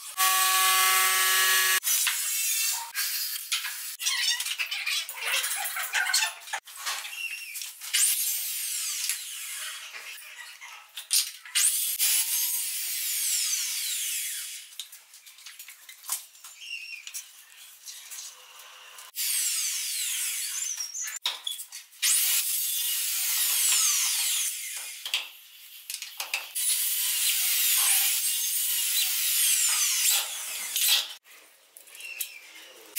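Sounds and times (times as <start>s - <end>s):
electric drill boring into wood: 0.0s - 3.9s, 11.7s - 14.7s.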